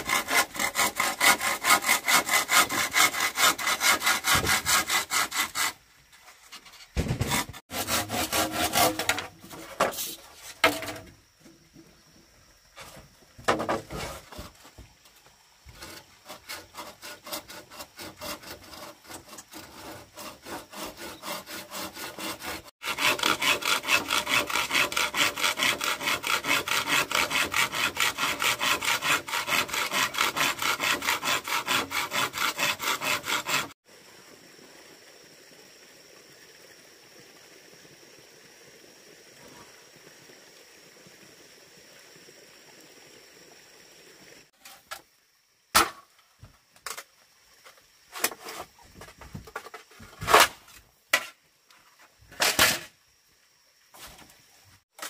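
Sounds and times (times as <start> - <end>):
hand saw cutting bamboo: 0.0 - 5.8, 6.6 - 11.0, 15.7 - 33.8.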